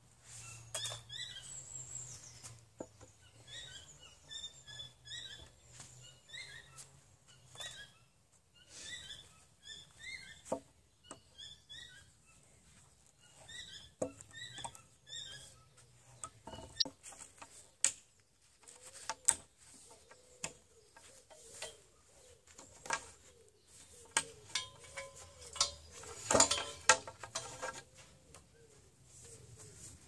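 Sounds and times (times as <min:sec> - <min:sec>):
birds chirping: 0:00.2 - 0:30.0
metal clinking on wooden beam: 0:13.6 - 0:15.3, 0:24.0 - 0:28.1.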